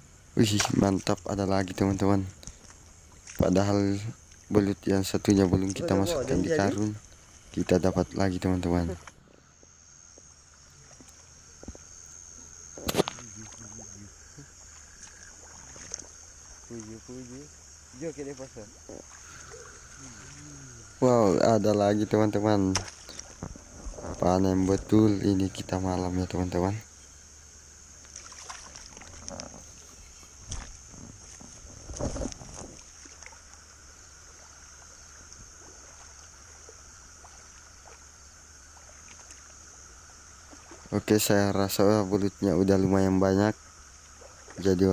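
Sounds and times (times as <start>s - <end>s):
night insects droning: 0.0s - 44.9s
water splashing: 0.4s - 9.3s, 10.3s - 41.5s, 42.9s - 44.9s.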